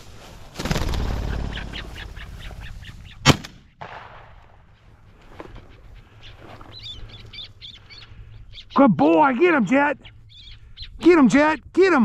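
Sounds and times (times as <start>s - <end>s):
bird wings flapping: 0.0s - 3.1s
bird calls: 0.7s - 3.8s, 4.7s - 11.7s
gunshot: 3.2s - 4.4s.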